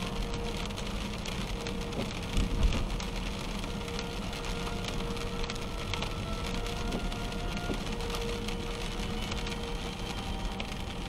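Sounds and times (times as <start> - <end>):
rain on car windshield: 0.0 - 11.0
road and engine noise: 0.0 - 11.0.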